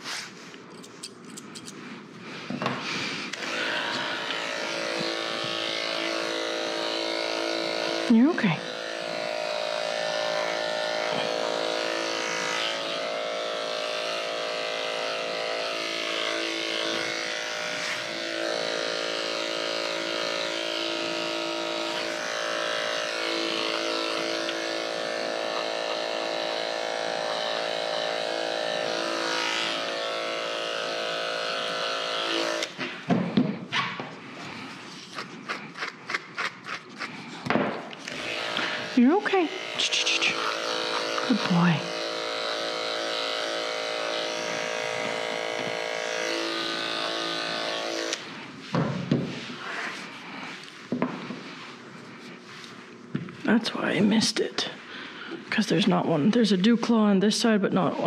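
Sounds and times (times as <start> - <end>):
electric dog clippers running: 0.7 - 58.0
slicker brush scratching fur: 2.3 - 32.7, 38.1 - 48.7, 49.3 - 50.8.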